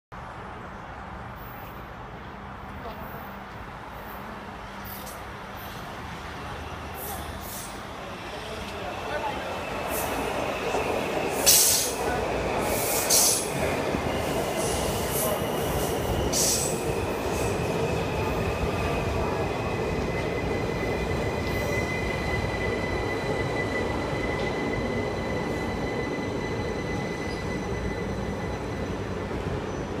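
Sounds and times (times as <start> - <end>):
train wheels rumbling on rails: 1.4 - 30.0
high wheel squeal: 20.2 - 30.0.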